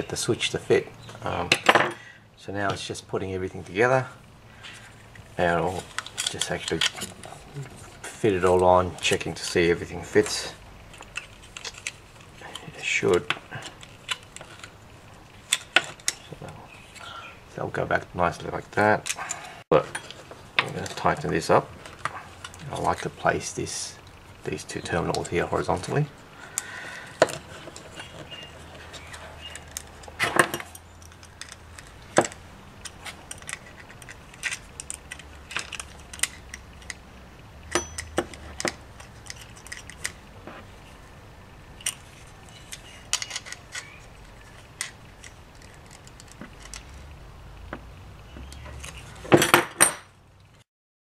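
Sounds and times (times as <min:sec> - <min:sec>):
small metallic clicks and clinks: 0:37.7 - 0:40.2.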